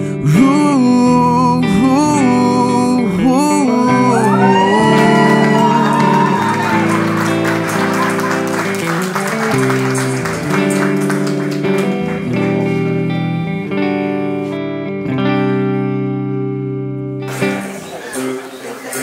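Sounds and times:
person singing: 0:00.0 - 0:07.5
guitar music: 0:00.0 - 0:19.0
people applauding: 0:04.1 - 0:13.3, 0:17.3 - 0:19.0.

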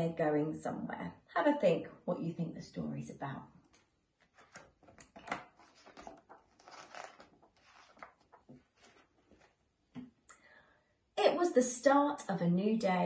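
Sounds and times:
paper pages rustling: 0:04.1 - 0:09.8.

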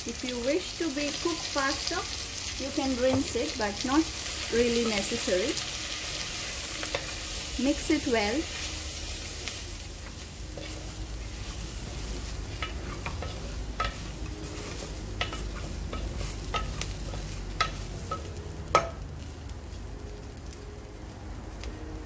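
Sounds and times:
frying sizzle: 0:00.0 - 0:22.0.

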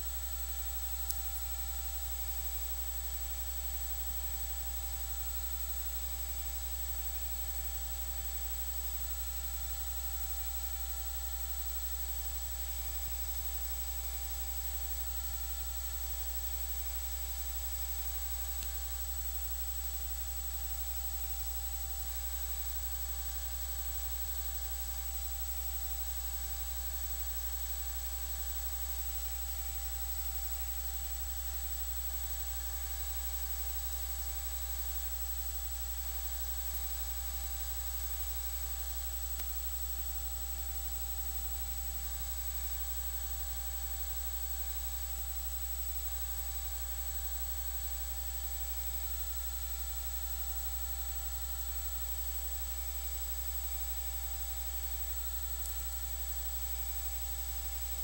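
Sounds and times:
electrical hum and hiss: 0:10.1 - 0:24.5, 0:28.4 - 0:49.4.

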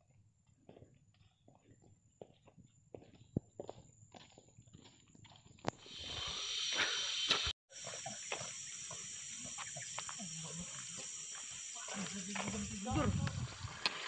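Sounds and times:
footsteps on dirt: 0:00.5 - 0:06.2, 0:07.3 - 0:14.0
high hiss of outdoor ambience: 0:05.9 - 0:14.0.

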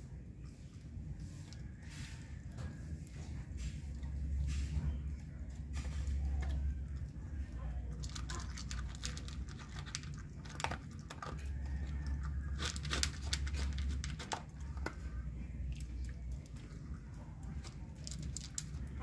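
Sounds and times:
low steady rumble: 0:00.0 - 0:19.0
dog crunching dry kibble: 0:05.4 - 0:19.0.

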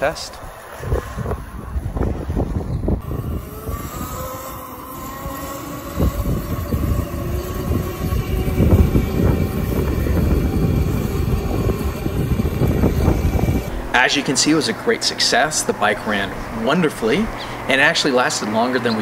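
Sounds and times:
low rumble: 0:01.3 - 0:14.0
electric motor whining: 0:02.8 - 0:17.7.

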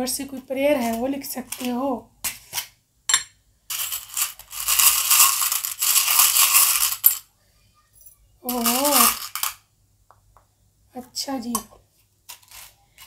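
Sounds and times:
metal charms rattling in tin: 0:03.7 - 0:07.2, 0:08.5 - 0:09.6.

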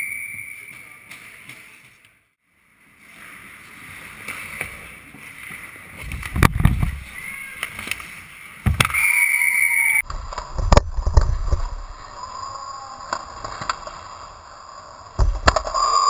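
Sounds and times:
skates scraping on ice: 0:02.9 - 0:09.0.

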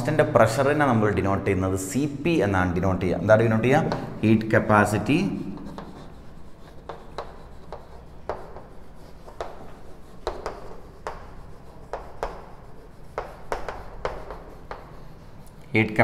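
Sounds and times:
chalk tapping and scraping on chalkboard: 0:03.0 - 0:15.8.

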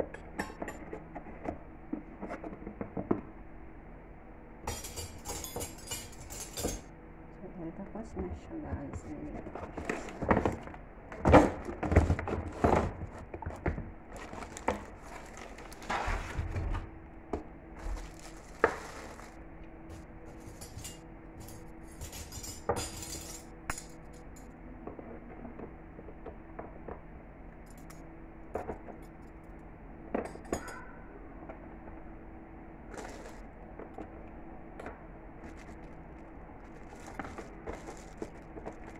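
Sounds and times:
metal cutlery clinking: 0:04.7 - 0:06.9, 0:20.4 - 0:24.2
plastic wrapping crinkling: 0:12.4 - 0:16.6, 0:17.8 - 0:19.4, 0:32.9 - 0:33.5, 0:35.4 - 0:38.9.

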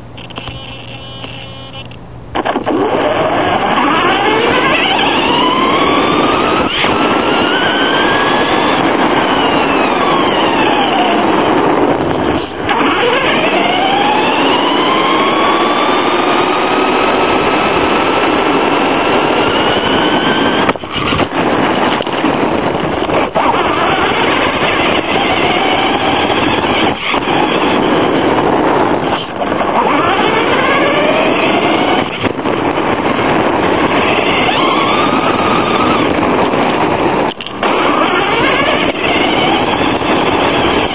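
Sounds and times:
drivetrain and tyres rushing: 0:00.0 - 0:40.9
electric motor whining: 0:00.0 - 0:40.9.

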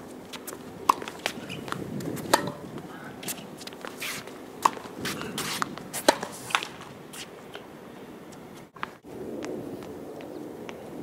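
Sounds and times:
footsteps: 0:00.3 - 0:07.6
tennis ball hit by racket: 0:00.3 - 0:07.6
shoe scuffs: 0:03.2 - 0:07.4.

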